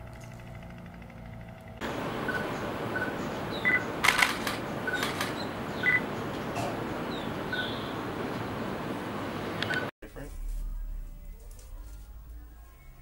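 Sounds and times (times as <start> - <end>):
sharp clicks: 3.7 - 6.5, 9.6 - 9.9
short bird call notes: 4.8 - 8.2.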